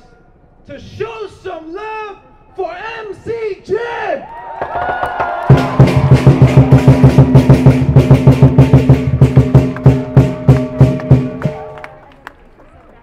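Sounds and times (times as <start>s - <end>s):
rapid heavy drum beat: 5.5s - 11.6s.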